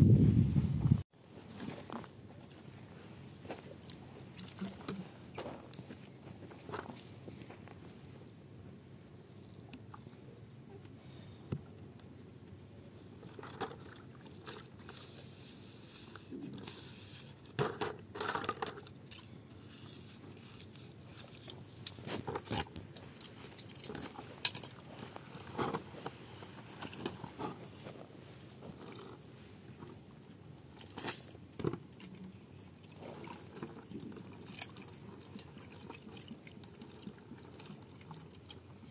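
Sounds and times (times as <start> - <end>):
small water splashes: 4.3 - 5.1, 32.8 - 38.9.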